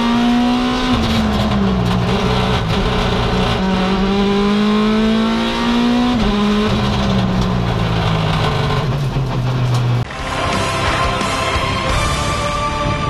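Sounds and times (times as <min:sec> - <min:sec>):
rally car engine revving: 0:00.0 - 0:12.0
theme music: 0:10.0 - 0:13.0.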